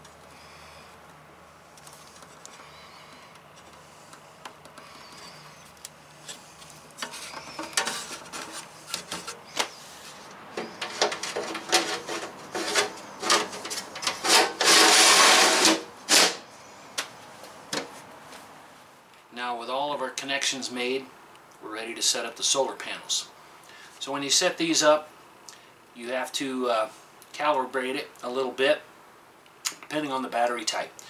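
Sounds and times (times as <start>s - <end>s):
hands rattling wiring and connectors: 1.7s - 15.4s
loud rasping scrape: 11.4s - 13.5s, 14.1s - 16.4s.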